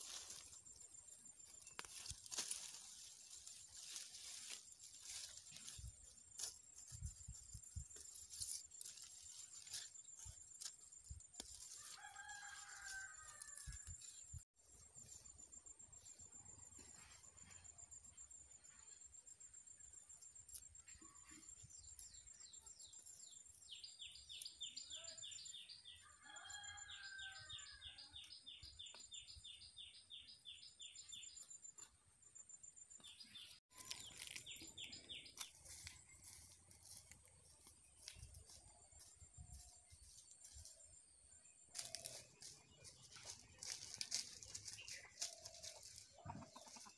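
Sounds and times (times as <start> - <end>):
high insect trill: 0.0 - 41.0
leaves being plucked: 1.6 - 5.8, 33.7 - 34.6
rooster crowing: 11.7 - 13.9, 26.0 - 28.2.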